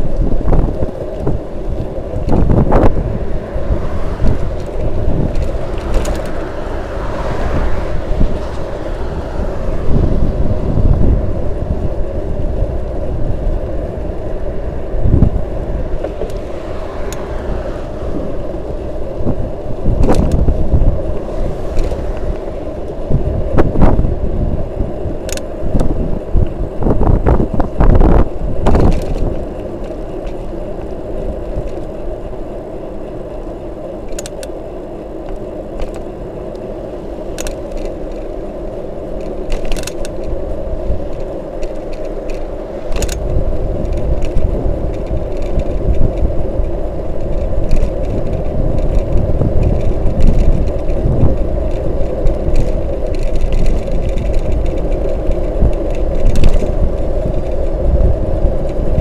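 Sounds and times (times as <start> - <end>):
bicycle tyre hum on asphalt: 0.0 - 59.0
wind buffeting microphone: 0.0 - 59.0
rattling clicks: 4.2 - 6.8, 34.0 - 34.6, 37.3 - 38.4, 39.1 - 59.0.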